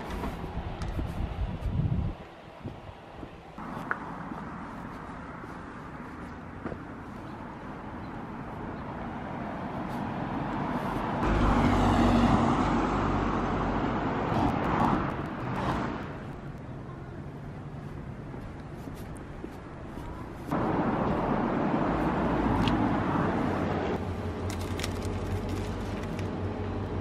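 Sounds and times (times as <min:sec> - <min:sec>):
car driving past: 0:11.0 - 0:16.1.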